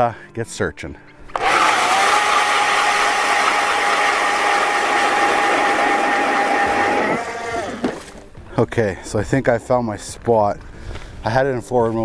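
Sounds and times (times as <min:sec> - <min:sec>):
drill bit grinding ice: 0:01.3 - 0:08.1
electric ice auger motor whine: 0:01.3 - 0:08.2.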